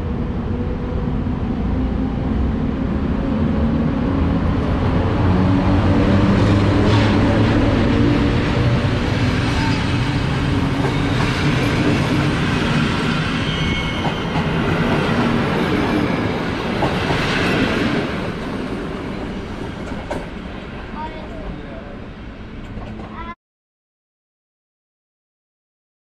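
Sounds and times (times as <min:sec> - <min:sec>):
train coaches rolling on rails: 0:04.6 - 0:23.3.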